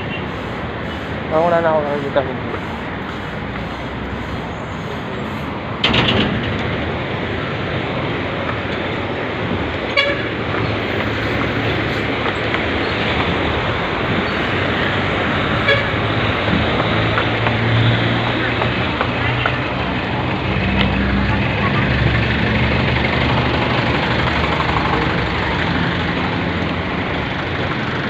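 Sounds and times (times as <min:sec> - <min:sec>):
road traffic: 0:00.0 - 0:28.0
vehicle horn toots: 0:09.9 - 0:10.3, 0:15.6 - 0:16.0.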